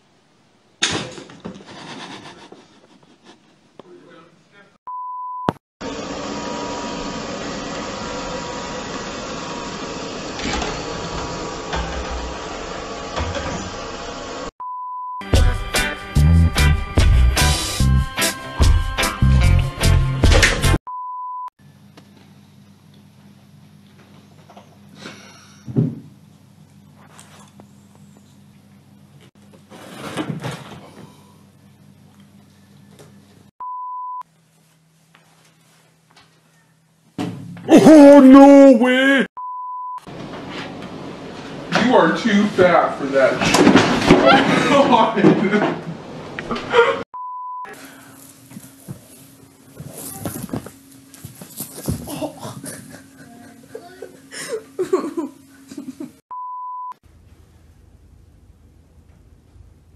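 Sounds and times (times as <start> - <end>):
high beep: 4.9 - 5.6, 39.4 - 40.0, 47.2 - 47.7
robot vacuum whirring: 5.9 - 14.5.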